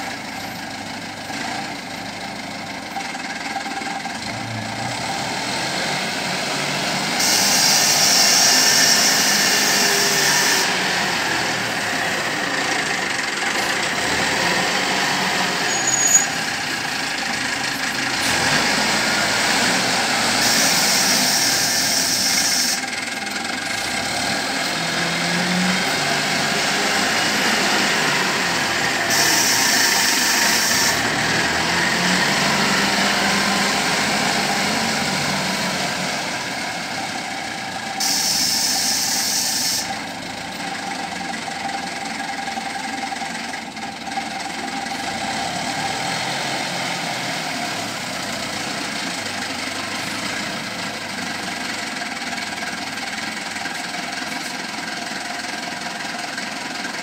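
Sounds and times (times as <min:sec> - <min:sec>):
diesel engine under load: 0:00.0 - 0:57.0
high hiss: 0:38.0 - 0:39.9.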